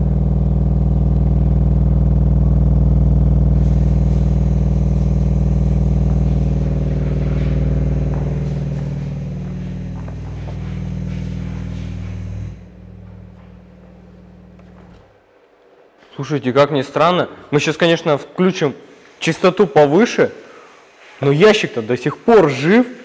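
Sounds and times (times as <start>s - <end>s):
deep subwoofer drone with buzz: 0.0s - 15.2s.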